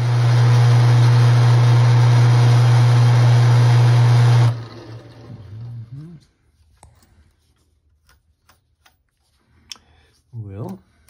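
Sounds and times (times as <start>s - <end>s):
metal lathe running: 0.0s - 5.9s.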